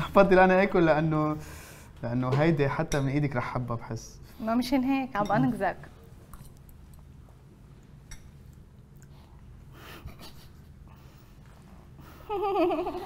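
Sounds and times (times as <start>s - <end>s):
soft breathing: 1.4s - 2.0s
spoons clicking against bowls: 8.0s - 8.3s.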